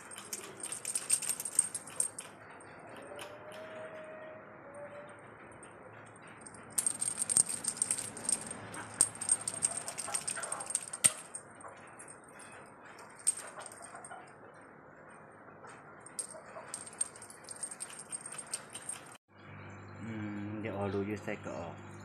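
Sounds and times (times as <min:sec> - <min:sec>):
cat toy rattling and jingling: 0:00.0 - 0:03.3, 0:06.1 - 0:14.2, 0:16.1 - 0:19.2.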